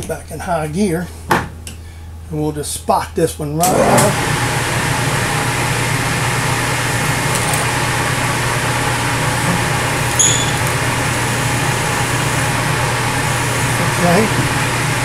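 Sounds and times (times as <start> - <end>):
milling machine spindle running: 3.6 - 15.0
drill bit squealing: 10.0 - 14.4.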